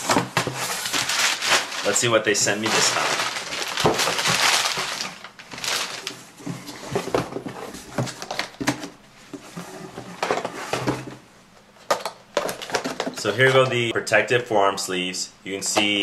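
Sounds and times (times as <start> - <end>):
paper packing rustling: 0.0 - 8.9
plastic packages crinkling: 0.2 - 7.1.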